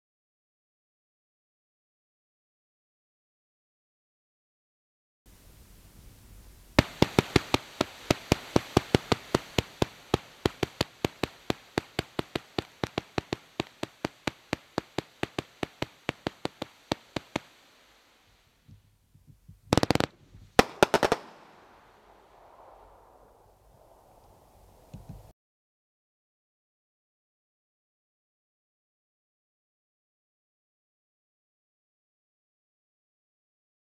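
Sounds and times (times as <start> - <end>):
fireworks firing rapid pops: 6.7 - 25.3
rapid loud cracks: 6.8 - 17.8, 19.7 - 23.4.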